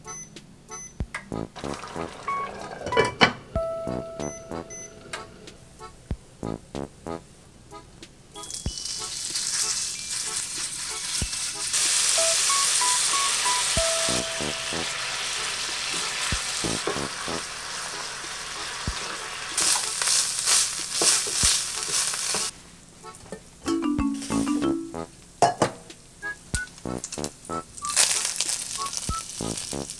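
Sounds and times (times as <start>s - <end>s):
meat sizzling in a frying pan: 8.4s - 22.5s, 27.8s - 29.9s.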